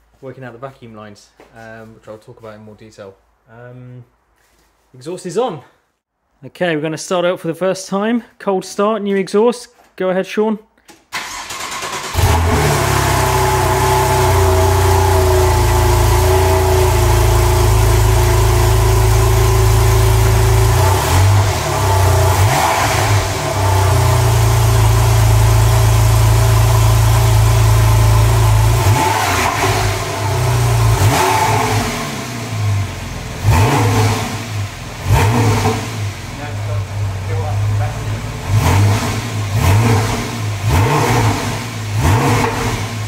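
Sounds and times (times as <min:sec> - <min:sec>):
engine revving blips: 0:20.1 - 0:24.6, 0:28.7 - 0:32.8, 0:33.4 - 0:36.2.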